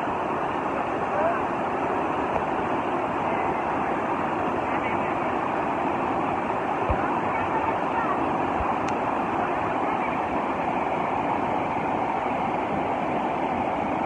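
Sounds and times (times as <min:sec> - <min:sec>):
river rushing through rapids: 0:00.0 - 0:14.0.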